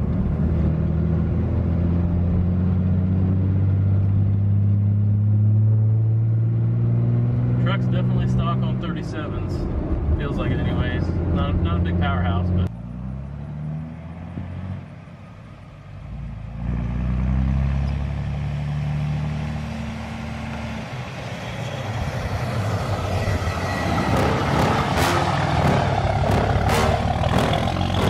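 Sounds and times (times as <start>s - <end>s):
pickup truck engine: 0.0s - 28.0s
truck passing with tyre noise: 12.7s - 28.0s.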